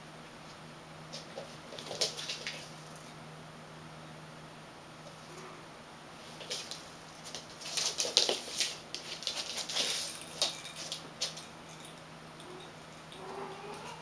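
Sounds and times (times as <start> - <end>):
cats scuffling and thumping: 1.0 - 3.2, 6.2 - 11.9
paw patters on hard floor: 1.1 - 2.7, 6.4 - 11.5.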